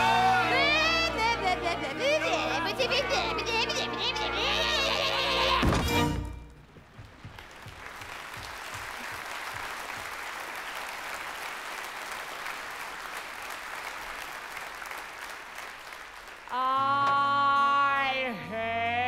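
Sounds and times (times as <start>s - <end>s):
audience applauding: 6.7s - 17.0s.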